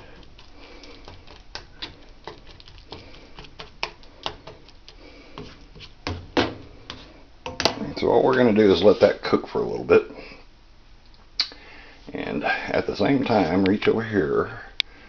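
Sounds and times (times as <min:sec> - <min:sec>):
utensil scraping skillet: 0:00.0 - 0:07.3.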